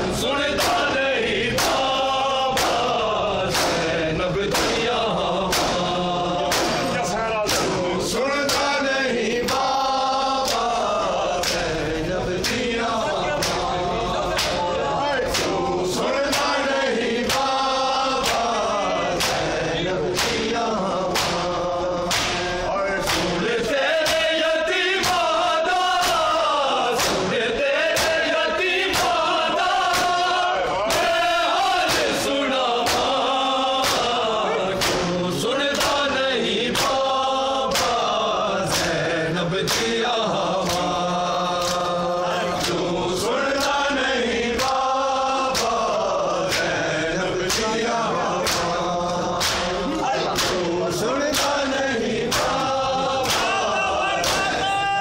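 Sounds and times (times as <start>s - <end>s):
men chanting in unison: 0.0s - 55.0s
hands slapping chests: 0.6s - 0.9s, 1.5s - 7.8s, 8.4s - 8.8s, 9.4s - 9.8s, 10.4s - 10.8s, 11.4s - 11.7s, 12.4s - 12.7s, 13.4s - 13.7s, 14.3s - 14.6s, 15.3s - 15.6s, 16.3s - 16.6s, 17.2s - 19.5s, 20.1s - 23.4s, 24.0s - 24.4s, 25.0s - 25.4s, 26.0s - 31.2s, 31.8s - 39.0s, 39.6s - 40.0s, 40.6s - 41.0s, 41.6s - 42.9s, 43.5s - 43.9s, 44.6s - 46.8s, 47.4s - 47.8s, 48.4s - 54.6s.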